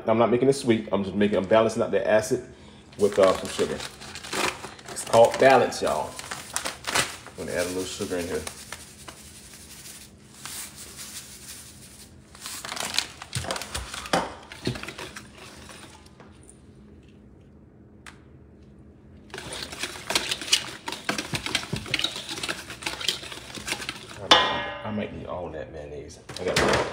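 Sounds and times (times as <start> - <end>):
whisk scraping metal bowl: 7.4 - 12.2, 19.3 - 24.3.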